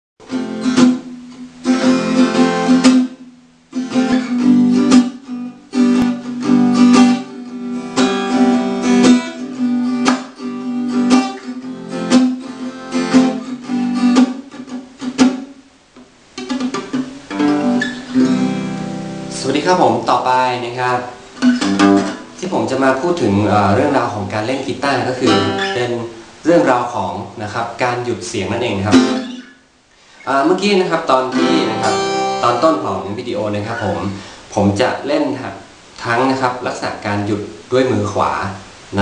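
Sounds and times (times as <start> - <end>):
acoustic guitar muted strumming: 0.2 - 20.1, 21.0 - 24.1, 24.7 - 26.2, 28.6 - 29.7, 31.0 - 34.3.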